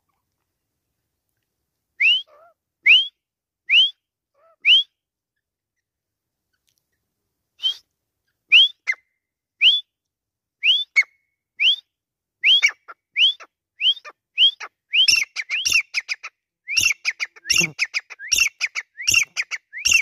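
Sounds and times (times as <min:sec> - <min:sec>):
bird whistled calls: 0:02.0 - 0:04.0, 0:04.6 - 0:04.9, 0:07.6 - 0:07.8, 0:08.5 - 0:09.0, 0:10.6 - 0:11.8, 0:12.4 - 0:20.0.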